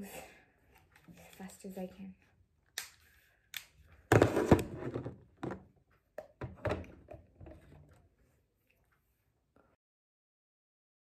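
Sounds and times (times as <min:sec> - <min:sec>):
items knocking on tabletop: 0:04.1 - 0:05.7.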